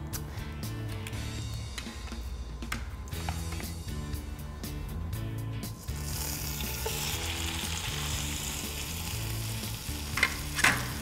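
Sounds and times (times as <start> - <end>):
meat sizzling in a frying pan: 5.9 - 11.0.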